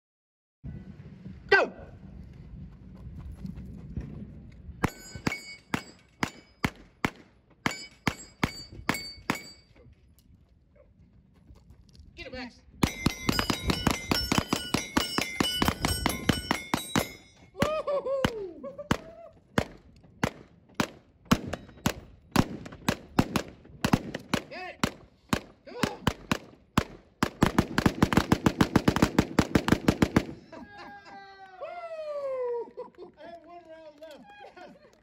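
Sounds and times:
steel targets ringing: 4.8s - 6.8s, 7.6s - 9.8s, 12.8s - 17.6s
rapid pistol fire: 19.6s - 30.4s.

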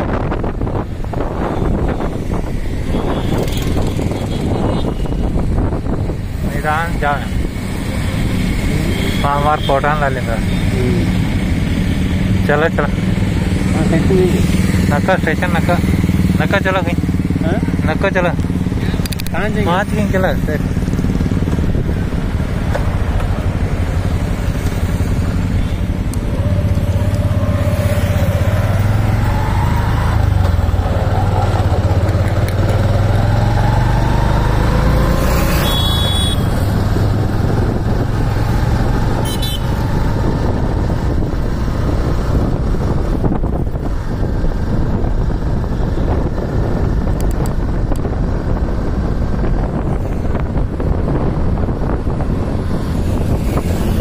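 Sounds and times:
motorcycles and scooters passing: 0.0s - 54.0s
traffic rumble: 0.0s - 54.0s
high-pitched horn toot: 35.4s - 36.6s, 39.2s - 39.8s.

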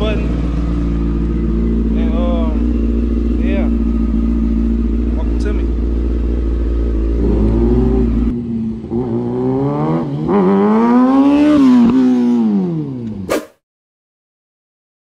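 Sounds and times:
motorcycle engine idling: 0.0s - 9.0s
motorcycle accelerating through gears: 0.0s - 13.3s.

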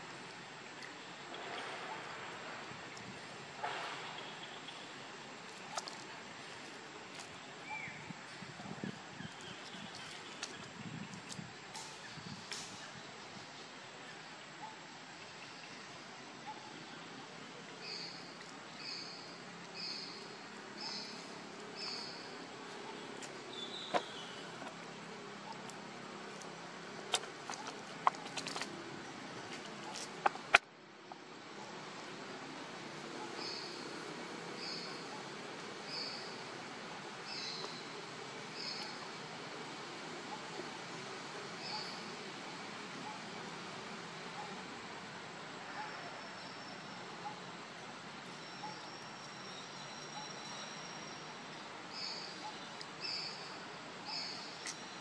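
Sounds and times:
background noise: 0.0s - 55.0s
steady outdoor hiss: 0.0s - 55.0s
faint soft pips: 21.2s - 30.6s.

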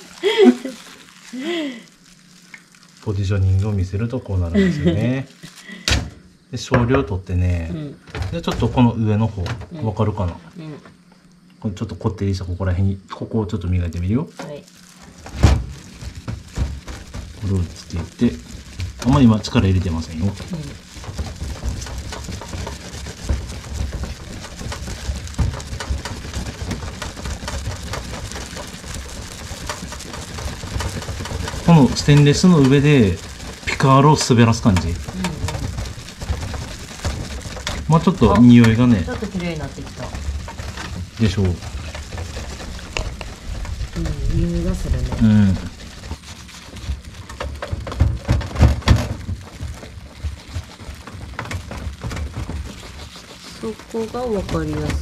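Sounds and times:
sponge scrubbing metal: 15.9s - 55.0s.

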